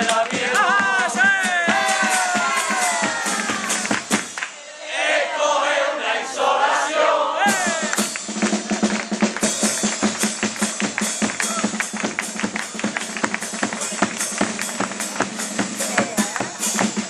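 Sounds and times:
bass drum and snare beat: 0.0s - 4.6s, 7.4s - 17.0s
voices and shouts: 0.4s - 8.1s.

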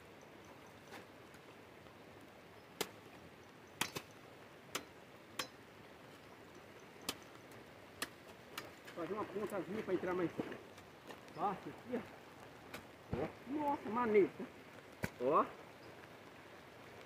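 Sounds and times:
faint steady hiss: 0.0s - 17.0s.

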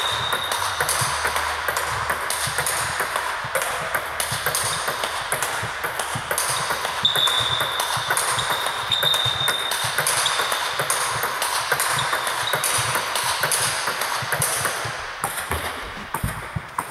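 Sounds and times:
table tennis balls clicking: 0.0s - 16.9s.

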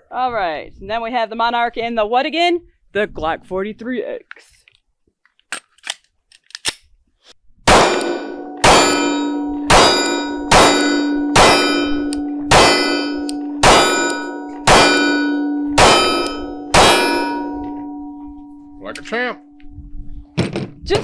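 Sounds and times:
pistol shots: 7.7s - 17.5s
steel target clanging: 7.7s - 19.6s.

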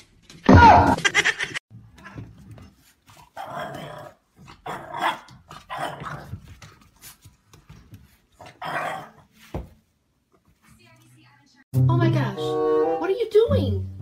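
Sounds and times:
dog growling and barking: 3.2s - 6.4s, 8.4s - 9.3s.

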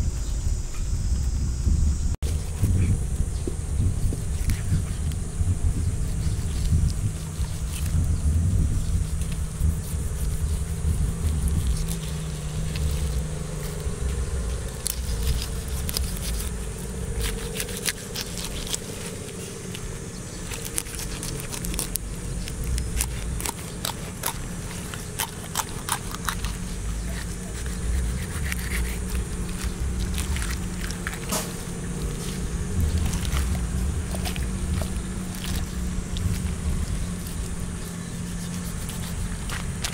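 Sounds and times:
blade crunching through bones: 6.0s - 39.9s
knife scraping fish: 20.5s - 32.4s, 37.1s - 39.9s.

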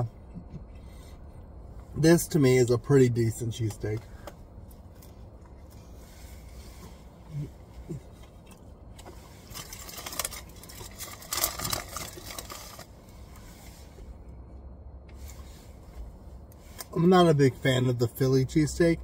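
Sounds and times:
low steady hum: 0.0s - 19.0s
foil and paper wrapper crinkling: 9.4s - 12.9s.

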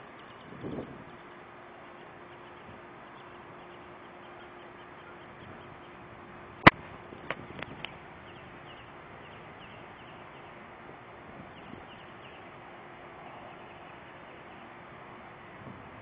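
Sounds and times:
faint bird chirps: 0.0s - 6.0s
outdoor background hiss: 0.0s - 16.0s.

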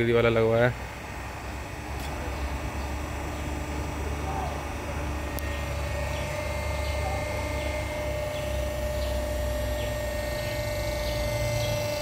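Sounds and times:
hose crimping machine humming: 0.0s - 12.0s.

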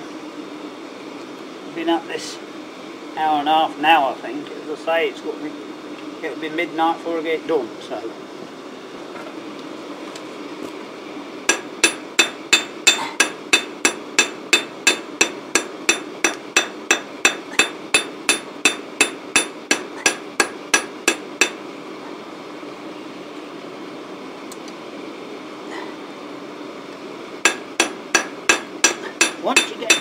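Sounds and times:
hammer striking metal: 11.5s - 21.6s, 27.4s - 30.0s.

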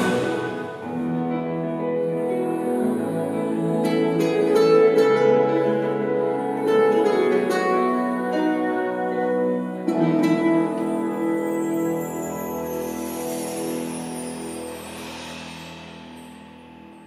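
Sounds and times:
long held chords: 0.0s - 13.5s.

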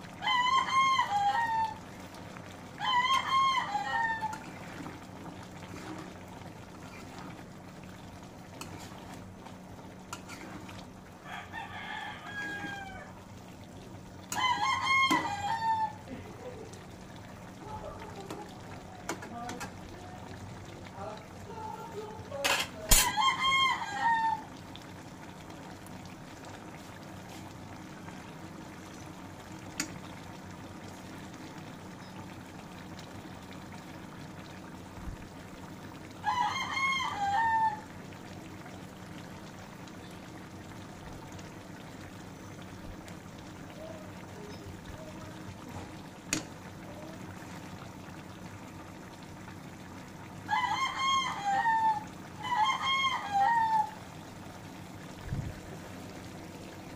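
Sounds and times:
low steady hum: 0.0s - 56.9s
rooster crowing: 0.2s - 1.8s, 2.8s - 4.6s, 11.2s - 13.2s, 14.3s - 16.0s, 23.0s - 24.6s, 36.2s - 37.9s, 50.4s - 54.1s.

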